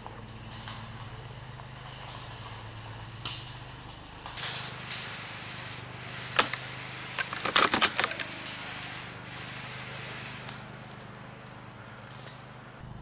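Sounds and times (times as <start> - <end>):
rustling: 4.4 - 12.8
rifle bolt clicks and rattles: 7.2 - 8.4.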